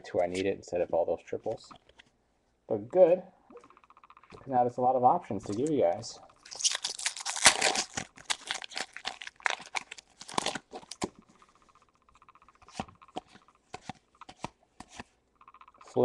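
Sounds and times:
foil wrapper tearing and crinkling: 0:06.4 - 0:11.1
cards clicking and snapping: 0:12.7 - 0:15.1.

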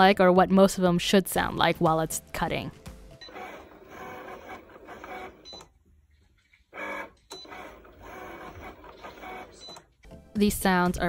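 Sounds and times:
cutting machine motors whirring: 0:03.2 - 0:05.7, 0:06.7 - 0:09.9.

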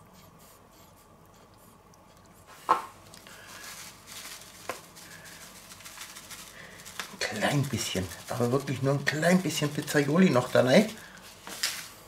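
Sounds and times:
paper bag rustling: 0:03.3 - 0:12.0.

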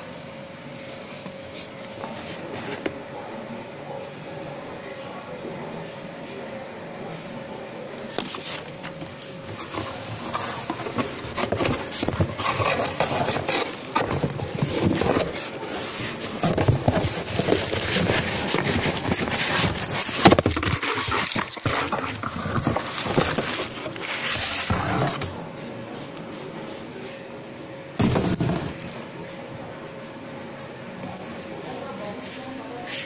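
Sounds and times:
plastic packaging crinkling: 0:08.2 - 0:25.2.

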